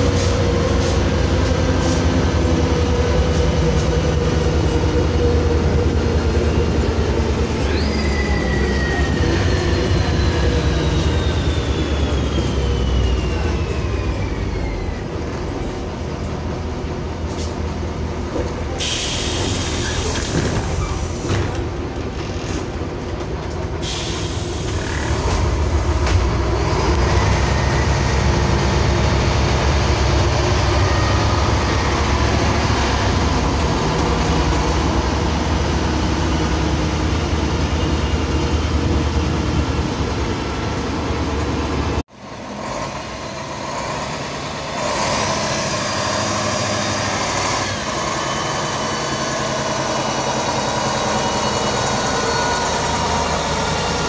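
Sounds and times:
bus engine drone: 0.0s - 54.0s.

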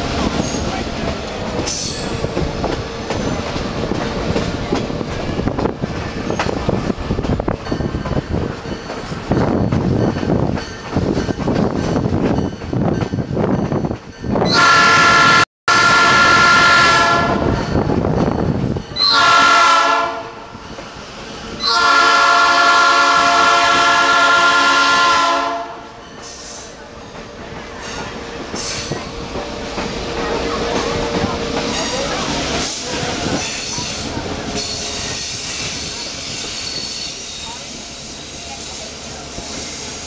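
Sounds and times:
train wheels clattering on rails: 0.0s - 14.5s, 20.5s - 40.0s
locomotive air horn blasts: 14.5s - 17.6s, 19.0s - 20.4s, 21.6s - 26.0s.

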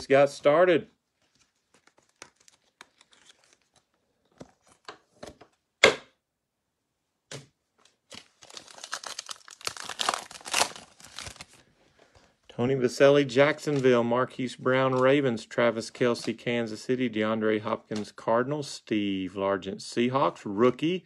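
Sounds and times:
foil pack tearing and crinkling: 8.1s - 11.6s.

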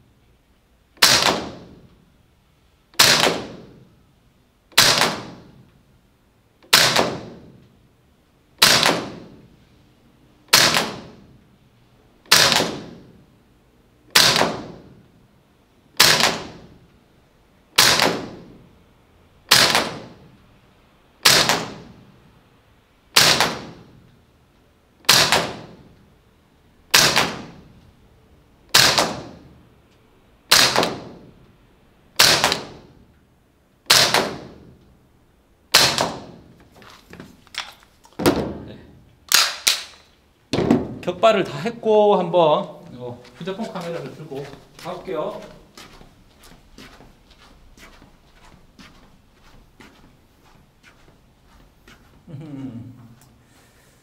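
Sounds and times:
airsoft rifle single shots: 1.0s - 1.9s, 3.0s - 3.8s, 4.7s - 5.6s, 6.7s - 7.6s, 8.6s - 9.4s, 10.5s - 11.3s, 12.3s - 13.1s, 14.1s - 15.0s, 16.0s - 16.8s, 17.8s - 18.6s, 19.5s - 20.2s, 21.2s - 22.0s, 23.1s - 23.9s, 25.0s - 25.9s, 26.9s - 27.7s, 28.7s - 29.5s, 30.5s - 31.2s, 32.2s - 32.9s, 33.9s - 34.7s, 35.7s - 36.4s, 39.3s - 40.1s.

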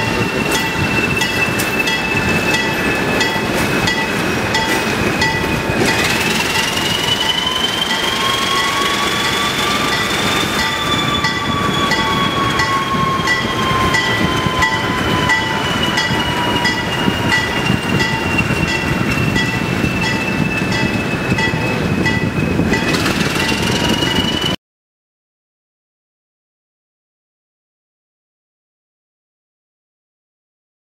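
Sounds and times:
diesel locomotive rumble and whine: 0.0s - 24.6s
locomotive bell ringing: 0.0s - 24.6s.

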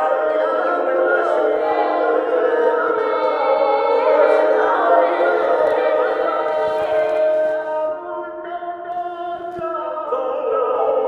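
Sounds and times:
layered choir-like singing voices: 0.0s - 11.0s.

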